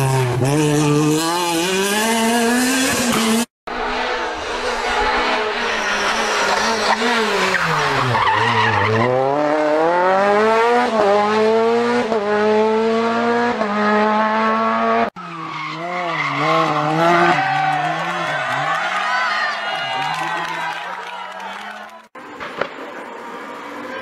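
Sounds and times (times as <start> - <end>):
second car engine revs wavering: 0.0 - 18.7
rally car engine revving: 0.0 - 19.0.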